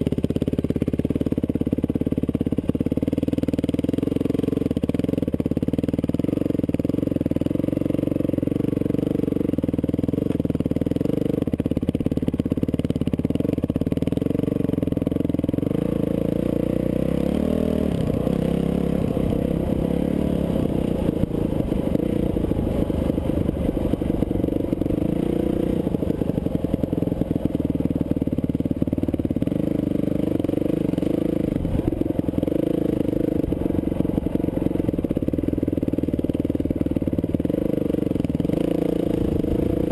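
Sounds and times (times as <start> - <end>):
dirt bike engine revving: 15.6 - 35.3.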